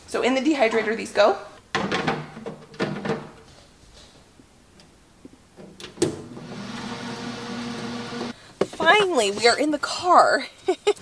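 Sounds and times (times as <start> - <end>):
fan humming: 5.9 - 9.6.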